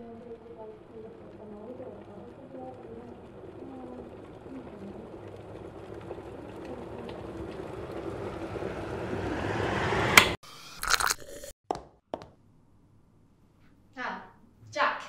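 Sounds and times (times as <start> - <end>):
rising swell of noise: 7.2 - 10.4
slurping from a paper cup: 10.4 - 11.5.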